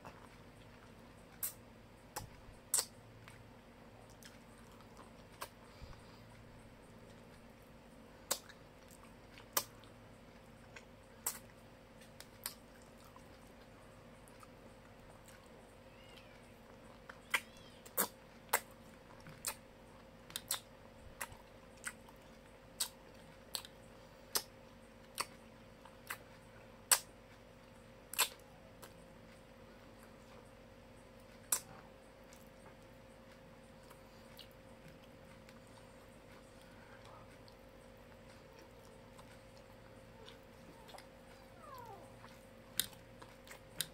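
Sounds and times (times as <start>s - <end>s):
mouth clicks and smacks: 0.0s - 3.4s, 4.1s - 5.7s, 8.2s - 10.0s, 10.7s - 13.5s, 17.1s - 19.7s, 20.3s - 27.2s, 28.1s - 29.0s, 31.4s - 32.7s
person chewing food: 0.0s - 43.9s.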